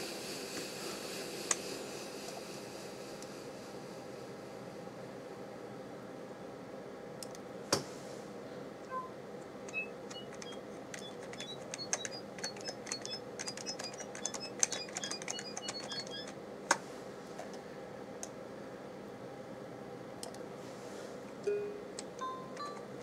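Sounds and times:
high electronic chirps: 9.7s - 16.3s.

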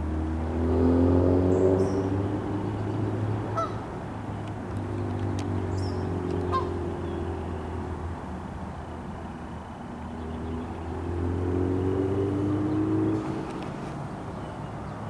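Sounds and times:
goose honking: 3.5s - 3.9s, 6.5s - 6.8s.

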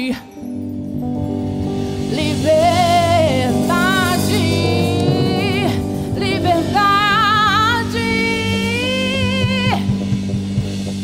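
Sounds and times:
band sustained chords: 0.8s - 11.0s
woman singing soul: 1.9s - 10.4s.

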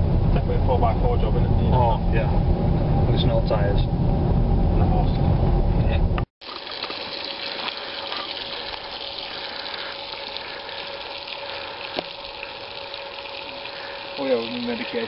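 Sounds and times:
bacon sizzling in a pan: 6.4s - 15.0s.

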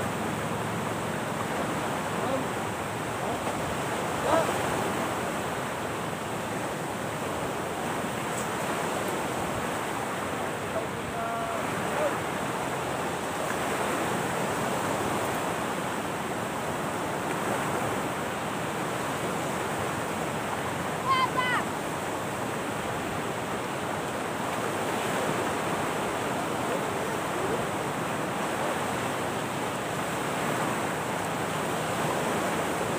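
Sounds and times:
surf along shore: 0.0s - 32.9s
wind: 0.0s - 32.9s
faint voices: 1.5s - 4.6s, 10.7s - 12.3s, 26.3s - 27.9s.

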